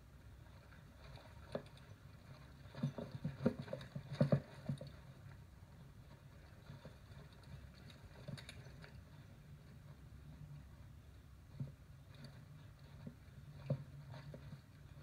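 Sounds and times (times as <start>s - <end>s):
bike knocking and rattling over rocks: 1.0s - 5.4s.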